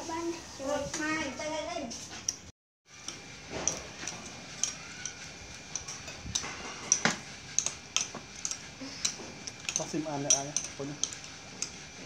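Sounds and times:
spoons clinking on ceramic plates: 3.1 - 11.8.

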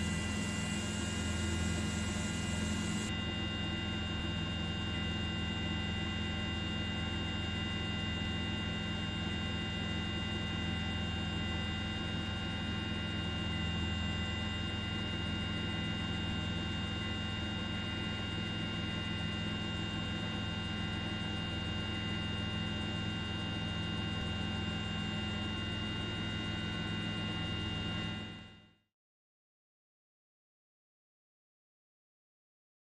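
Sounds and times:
aircraft engine drone: 0.0 - 4.6.

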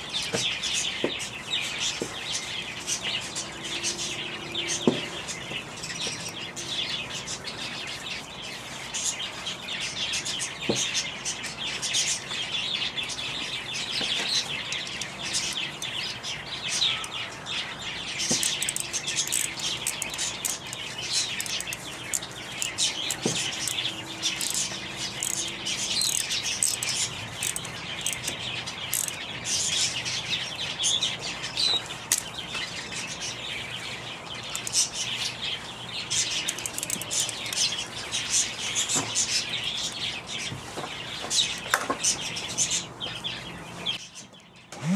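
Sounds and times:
small birds chirping: 0.0 - 44.9
faint clicks: 28.9 - 29.2.

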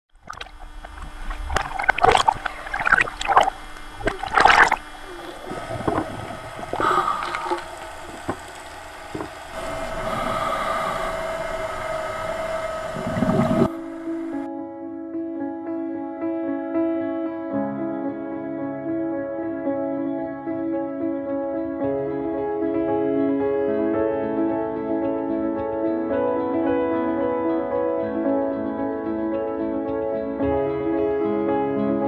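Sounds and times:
steady hum: 0.1 - 14.5
water splashing around a boat: 0.1 - 14.5
gentle piano music: 12.5 - 32.0.

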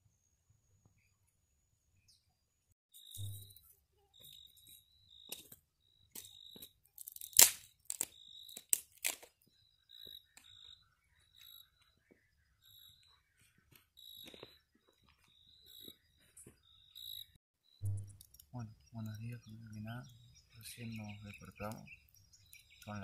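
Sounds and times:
insects chirping: 3.0 - 23.0
loud crunching clicks: 5.2 - 9.4.

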